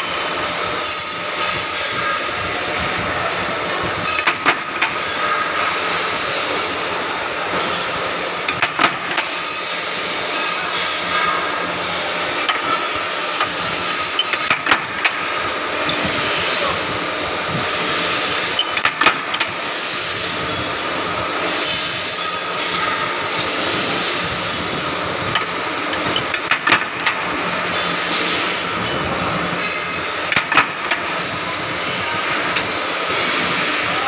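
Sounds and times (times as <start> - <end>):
power press rattling rumble: 0.2 - 33.6
sharp metallic clanks: 4.0 - 16.3, 21.5 - 31.5.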